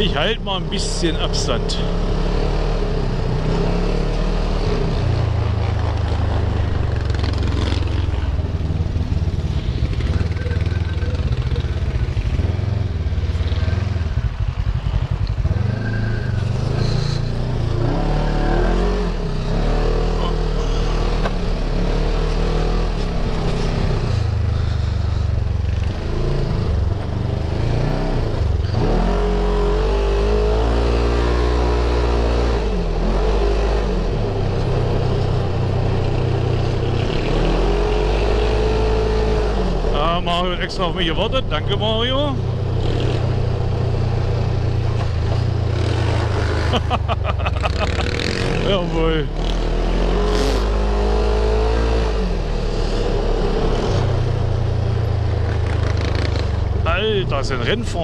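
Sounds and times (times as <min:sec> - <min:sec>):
buggy engine revving: 0:00.0 - 0:58.0.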